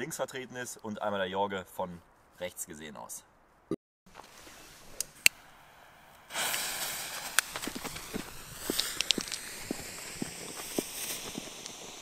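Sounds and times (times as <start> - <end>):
firework fountains hissing: 4.4 - 12.0
sharp clicks and pops: 7.2 - 12.0.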